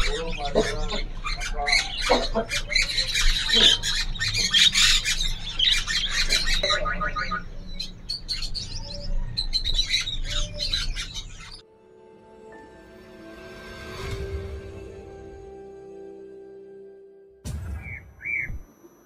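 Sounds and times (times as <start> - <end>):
budgerigars squawking and chirping: 0.0 - 11.6
finches chirping: 0.0 - 11.6, 17.9 - 18.6.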